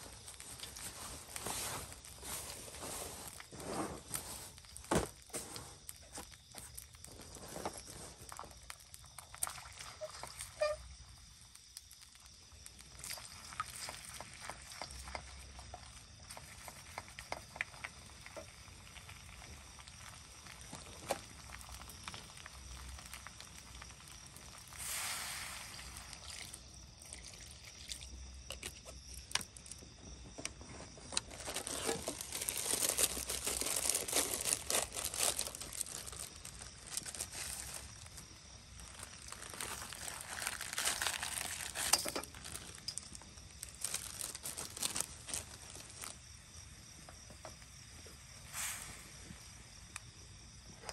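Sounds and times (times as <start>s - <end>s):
plastic packet crinkling: 0.0s - 10.8s, 31.0s - 46.2s
eggs sizzling in a wok: 0.0s - 29.0s, 35.4s - 50.6s.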